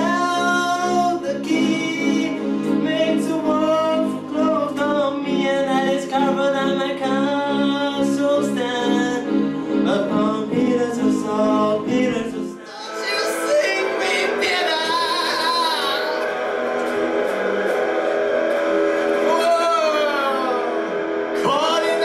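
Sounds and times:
man singing into a microphone: 0:00.0 - 0:16.2
brighter music performance: 0:00.0 - 0:22.0
electronic keyboard chords: 0:00.0 - 0:22.0.

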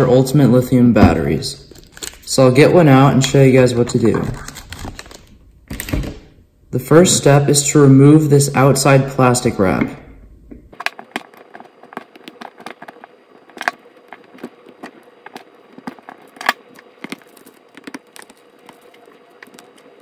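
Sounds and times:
plastic film crackling: 0:01.7 - 0:02.4, 0:03.9 - 0:05.9, 0:10.8 - 0:20.0.

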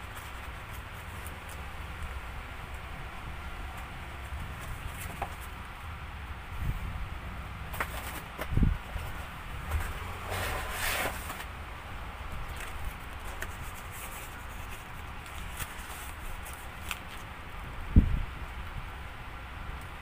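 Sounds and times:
cardboard box flaps scraping: 0:07.7 - 0:11.5.

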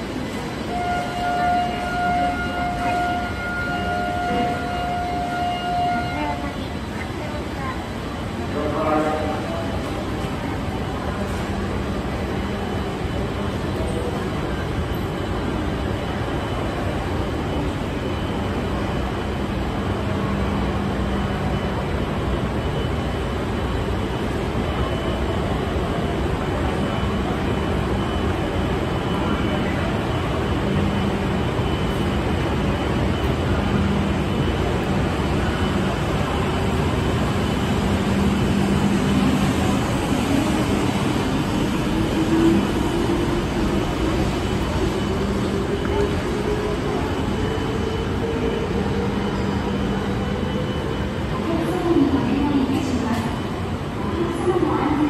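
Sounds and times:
busy train station noise: 0:00.0 - 0:55.0
steady high tone: 0:12.1 - 0:55.0.

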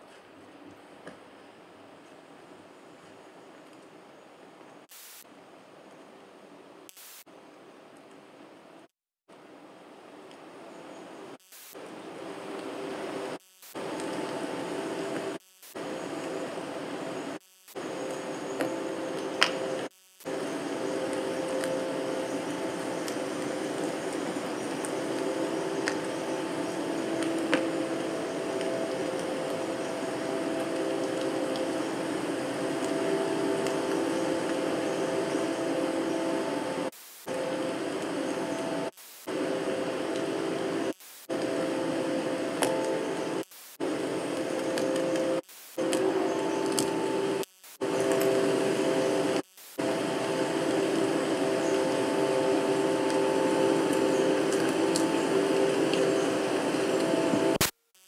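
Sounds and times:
hiss: 0:04.9 - 0:05.3
low drone tones: 0:17.8 - 0:57.6.

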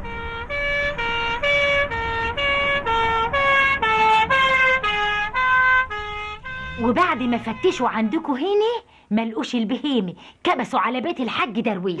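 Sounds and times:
two-tone police siren: 0:00.0 - 0:08.3.

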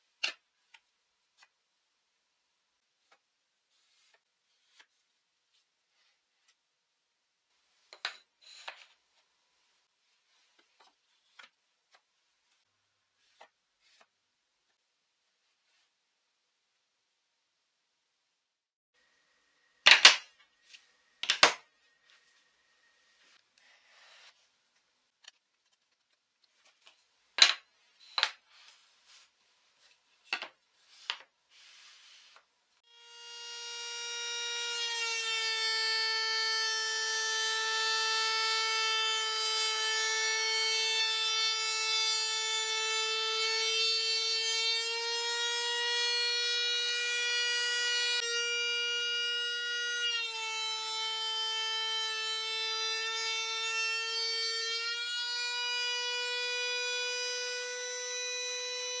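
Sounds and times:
wood sliding scrape: 0:30.8 - 0:32.4.

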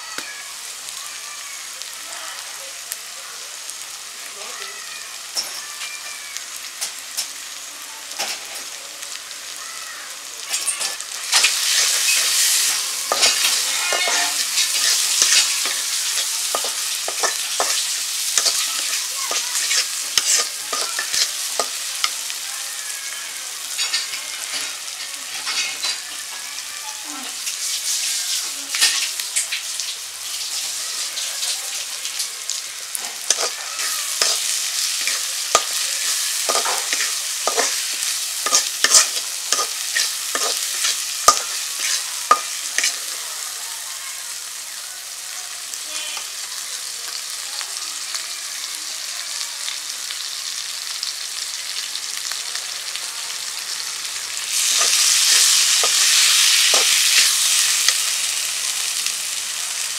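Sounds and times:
food sizzling in oil: 0:00.0 - 0:59.9
metal spatula scraping pan: 0:10.5 - 0:21.9, 0:33.1 - 0:43.1.

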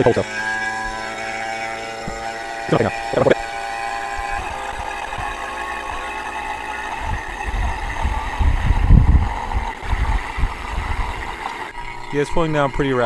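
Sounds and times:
vacuum pump humming: 0:00.0 - 0:13.0
low thuds and rumble: 0:07.0 - 0:11.0.

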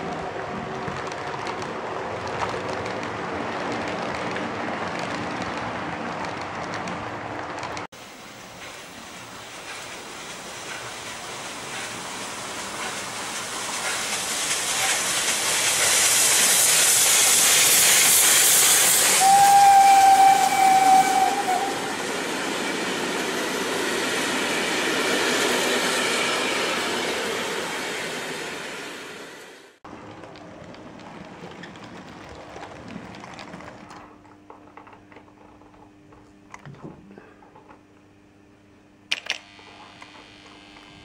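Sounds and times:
train running noise: 0:00.0 - 0:35.2
steam hissing: 0:07.9 - 0:29.8
steam train whistle: 0:18.6 - 0:22.1.

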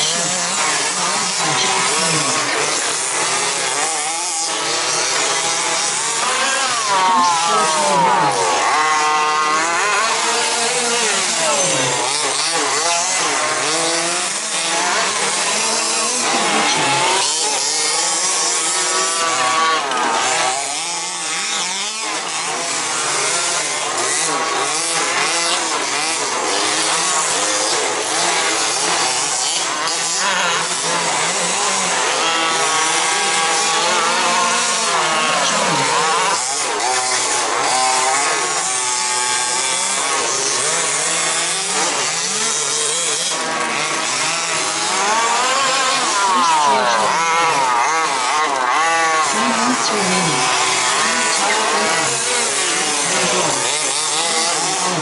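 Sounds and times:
remote-control car motors whining: 0:00.0 - 0:55.0.

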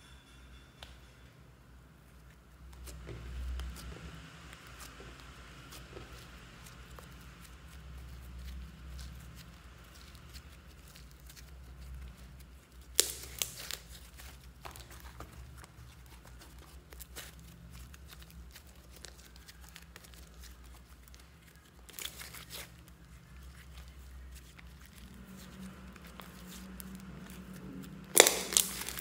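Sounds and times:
slime crackling when kneaded: 0:02.8 - 0:29.0.

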